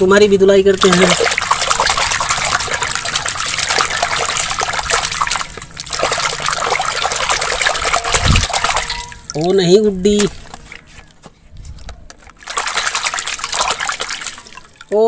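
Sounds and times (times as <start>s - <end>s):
soapy water sloshing: 0.7s - 9.6s, 12.2s - 15.0s.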